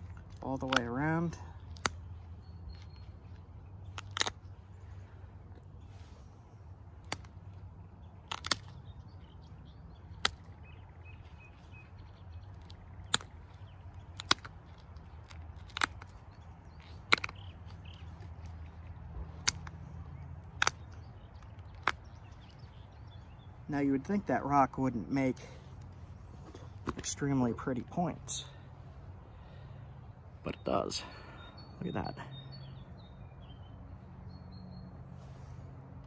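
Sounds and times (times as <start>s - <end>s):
flint flakes snapping with clicks: 0.0s - 4.6s, 6.9s - 23.2s.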